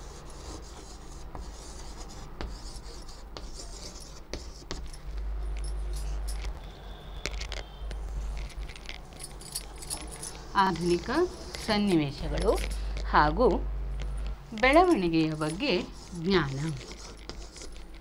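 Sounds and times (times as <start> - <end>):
chalk scratching on chalkboard: 0.0 - 4.9, 10.6 - 12.6, 14.7 - 18.0
bangles clinking: 4.8 - 13.0, 14.0 - 18.0.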